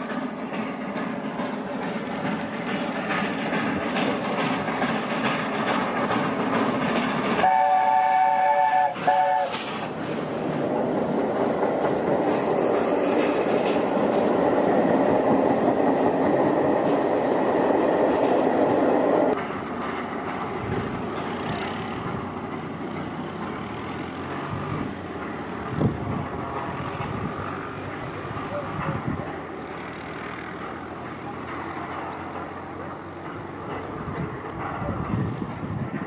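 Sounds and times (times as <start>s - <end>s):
train rumbling past: 0.0s - 36.0s
steam locomotive chime whistle: 7.4s - 9.6s.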